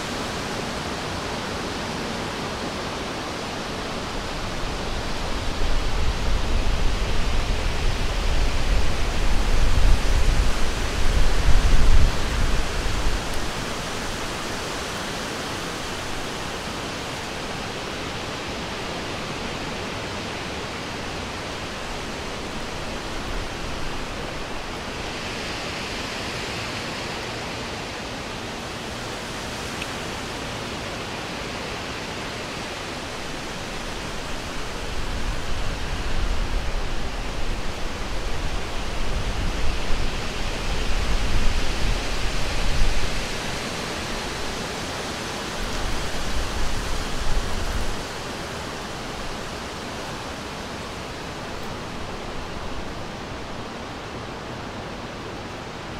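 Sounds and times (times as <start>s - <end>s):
low rumble of wind gusts: 0.0s - 55.9s
wind rushing through trees: 0.0s - 55.9s.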